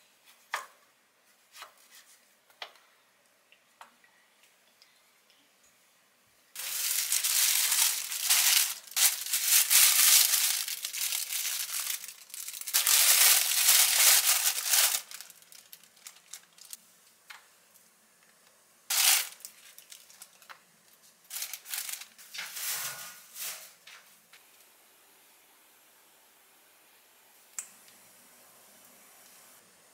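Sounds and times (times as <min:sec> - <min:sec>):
plastic bag crinkling: 0:06.6 - 0:16.8, 0:18.9 - 0:20.6, 0:21.2 - 0:23.8.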